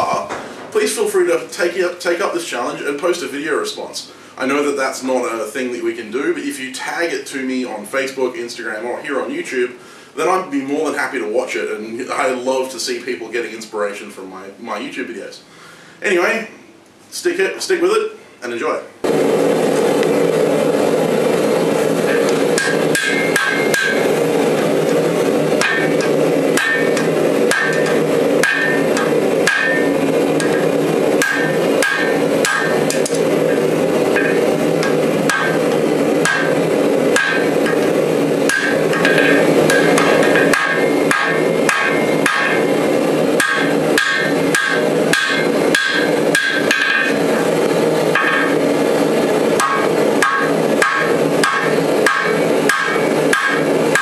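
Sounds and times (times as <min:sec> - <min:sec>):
hammer striking hot steel on anvil: 0:21.1 - 0:54.0.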